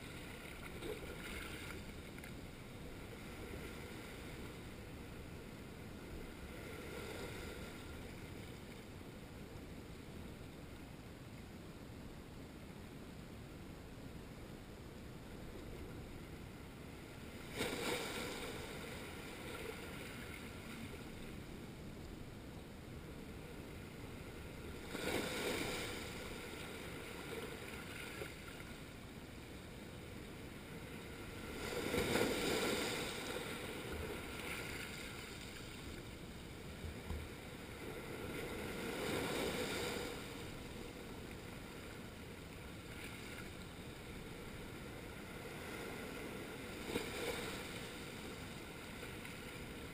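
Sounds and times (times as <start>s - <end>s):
steady water hiss: 0.0s - 49.9s
small waves washing over rocks: 17.4s - 20.6s, 24.5s - 28.6s, 31.2s - 35.9s, 36.8s - 40.6s.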